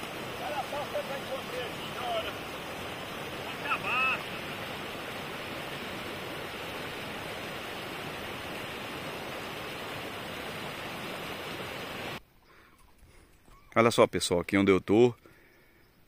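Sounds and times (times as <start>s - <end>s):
water rushing over spillway: 0.0s - 12.2s.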